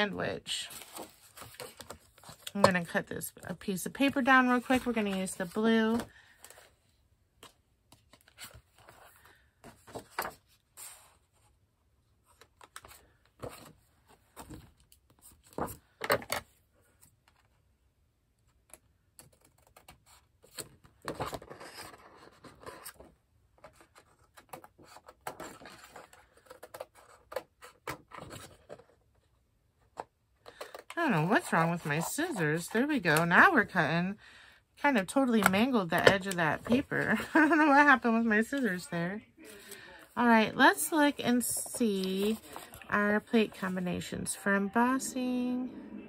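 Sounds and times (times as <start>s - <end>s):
scratchy paper rustling: 30.5s - 33.5s, 41.1s - 43.8s.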